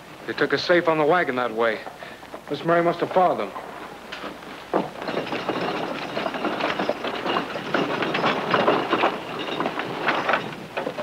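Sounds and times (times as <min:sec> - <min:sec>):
galloping horse hoofbeats: 0:04.2 - 0:11.0
wagon rattling: 0:04.2 - 0:11.0.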